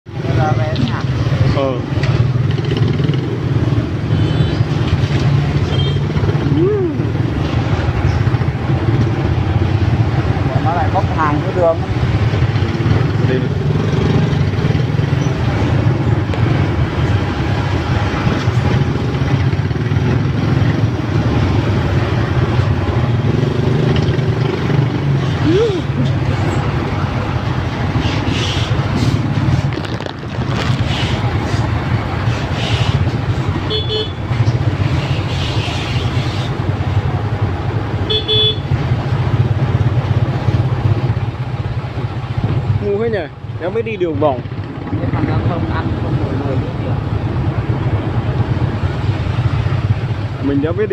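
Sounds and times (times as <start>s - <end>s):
motorbike and truck engines idling: 0.2s - 50.9s
horn toot: 33.6s - 34.2s, 38.1s - 38.7s.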